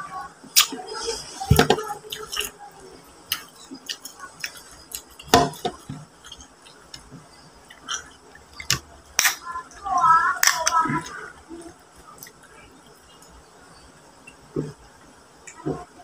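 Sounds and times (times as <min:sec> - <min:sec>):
chewing with mouth smacks: 0:03.3 - 0:09.4.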